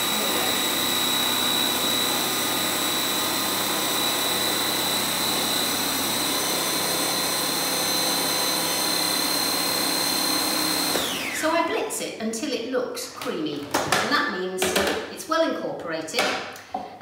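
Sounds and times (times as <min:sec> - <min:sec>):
food processor motor whining: 0:00.0 - 0:11.6.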